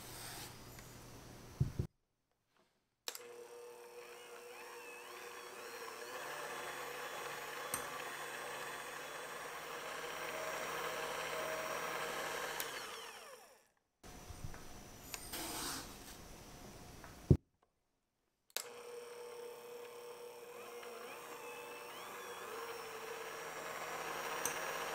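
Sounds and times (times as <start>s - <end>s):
electric hand mixer whipping: 3.2s - 13.6s, 18.7s - 24.9s.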